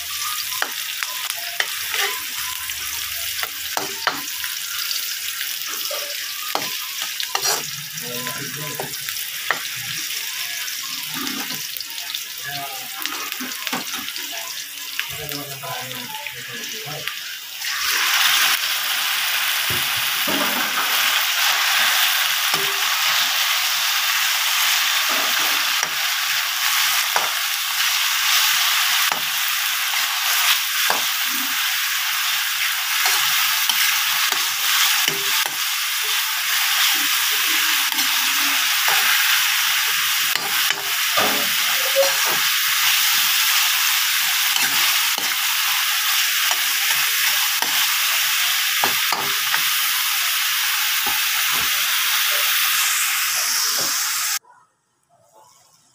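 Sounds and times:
food sizzling in hot oil: 0.0 - 54.4
metal spatula scraping wok: 5.7 - 8.2.

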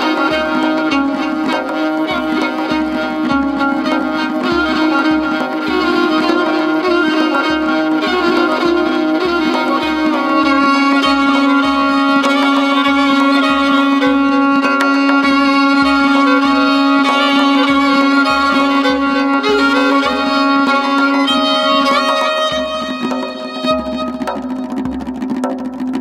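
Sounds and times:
solo violin playing: 0.0 - 24.6.

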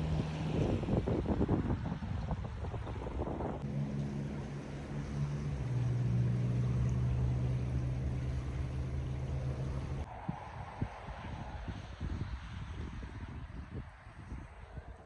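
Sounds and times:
wind on microphone: 0.0 - 3.7, 5.3 - 15.0
motorboat engine running: 3.6 - 10.1.

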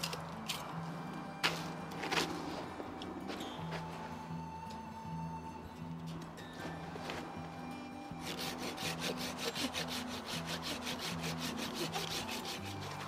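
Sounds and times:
soft background music: 0.0 - 13.0
pruning saw rasping through log: 8.1 - 13.0.

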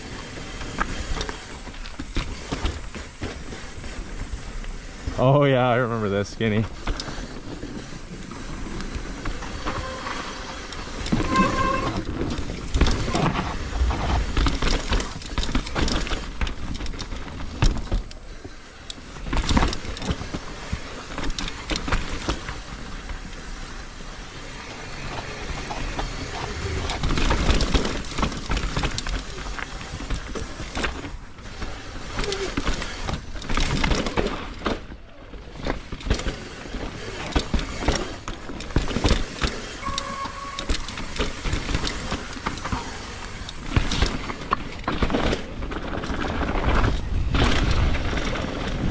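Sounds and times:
bike rattling: 0.0 - 48.9
bike tyres bumping over trail: 0.0 - 48.9
wind rumbling on microphone: 6.7 - 18.2, 24.0 - 31.3, 39.8 - 48.9.

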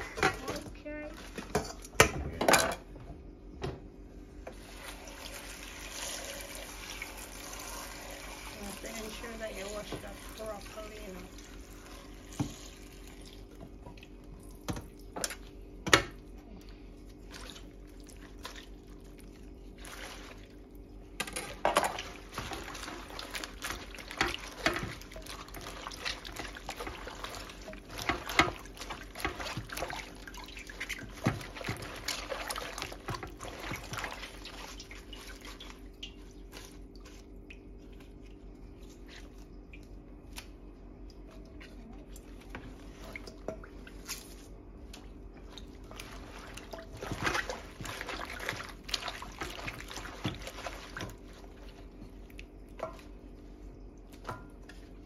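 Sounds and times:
water splashing and dripping: 21.9 - 54.9.

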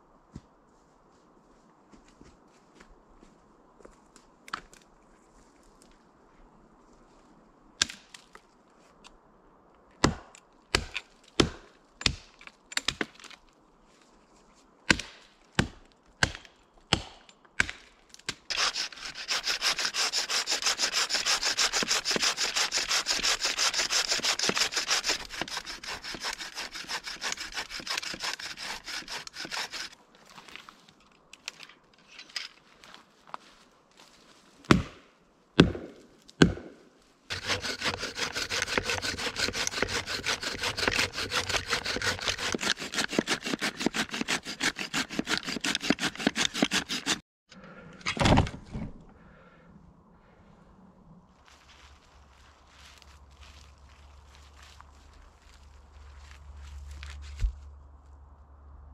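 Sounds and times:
hand saw sawing wood: 18.5 - 30.0, 37.3 - 47.2.

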